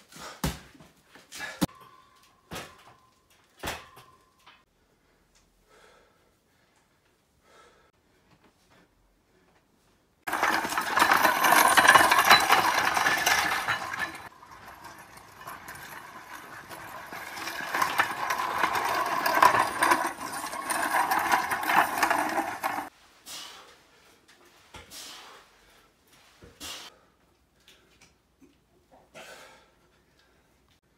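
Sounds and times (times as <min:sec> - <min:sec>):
sled dragged over dirt: 0:10.3 - 0:22.9.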